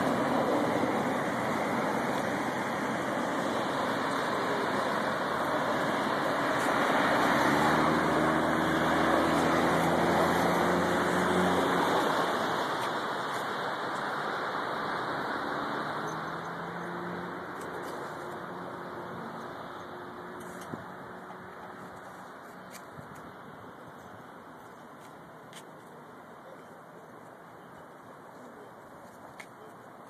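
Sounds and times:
street traffic hiss: 0.0s - 30.0s.

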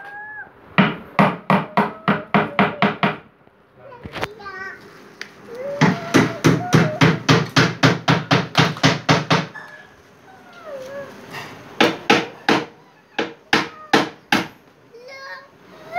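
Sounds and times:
child's high vocal sounds: 0.0s - 0.6s, 5.5s - 7.3s, 13.6s - 14.2s, 14.9s - 15.9s
rapid even knocking: 0.8s - 3.2s, 5.8s - 9.5s.

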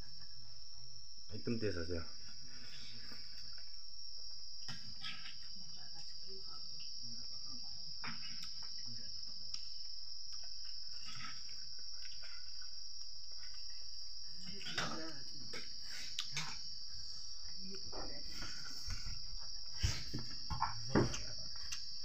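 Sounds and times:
insects chirring: 0.0s - 22.0s
person eating by hand: 8.0s - 22.0s.

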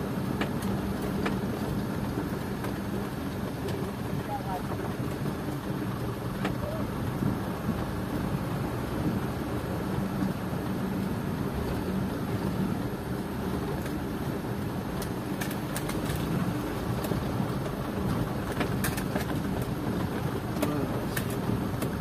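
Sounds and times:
diesel truck engine running: 0.0s - 22.0s.

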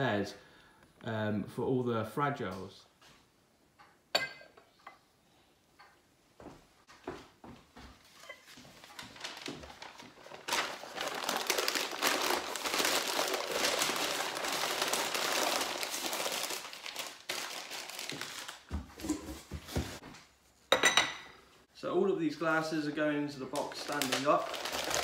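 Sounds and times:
packing paper crumpling: 8.6s - 18.8s, 23.5s - 25.0s.

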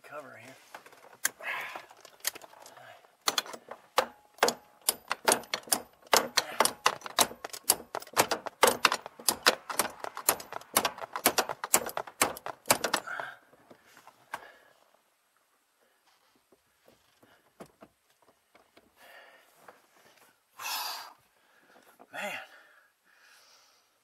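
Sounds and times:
hand tools clicking on metal: 1.2s - 13.3s.

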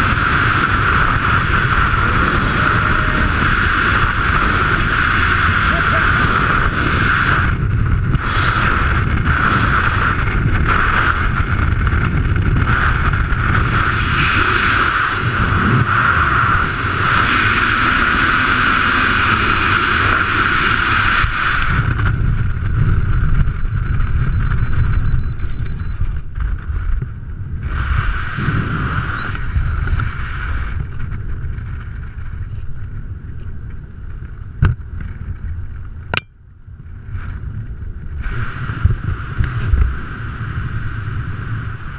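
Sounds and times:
wind rushing loudly: 0.0s - 25.3s
sharp click: 36.1s - 36.3s.

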